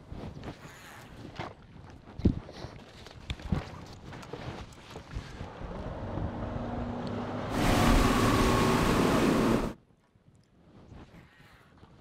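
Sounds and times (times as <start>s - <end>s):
wind: 0.0s - 12.0s
rushing water: 7.0s - 9.8s.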